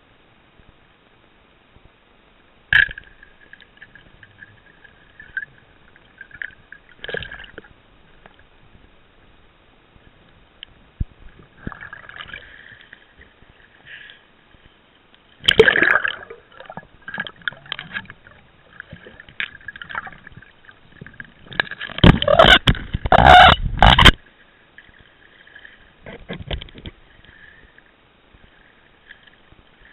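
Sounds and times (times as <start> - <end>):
water splashing: 2.7 - 8.3, 15.4 - 24.2
water gurgling underwater: 11.0 - 12.6, 15.4 - 24.2.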